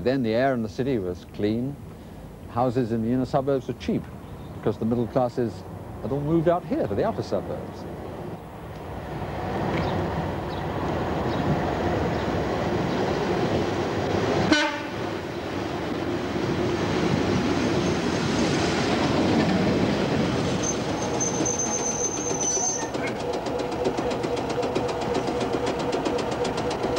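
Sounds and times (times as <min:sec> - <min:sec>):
train wheels rumbling on rails: 0:06.0 - 0:26.9
brakes squealing: 0:20.4 - 0:25.5.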